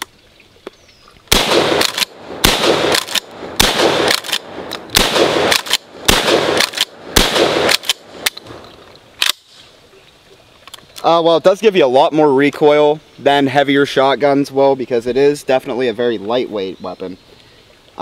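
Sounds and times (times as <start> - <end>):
shotgun shots: 1.3 - 8.6
shotgun pump racking clack: 1.8 - 2.1, 2.9 - 3.3, 4.1 - 5.9, 6.6 - 6.9.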